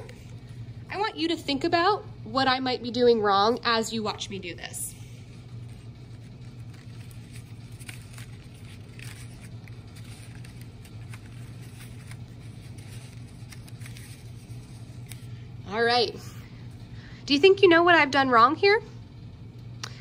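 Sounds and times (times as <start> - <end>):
steady low hum: 0.0 - 20.0
paper rustling and scraping: 5.2 - 15.4.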